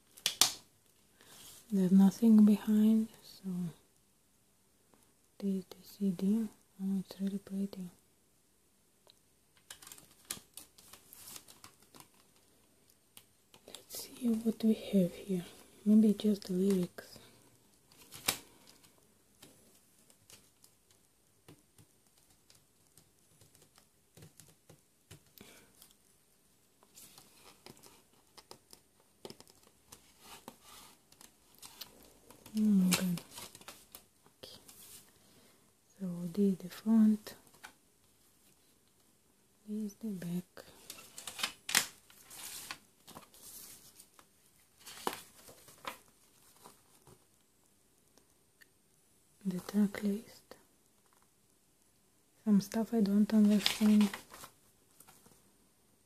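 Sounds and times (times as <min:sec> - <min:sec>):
paper rustling: 0:09.6 - 0:12.5, 0:26.8 - 0:35.2, 0:40.8 - 0:47.2, 0:53.2 - 0:55.4.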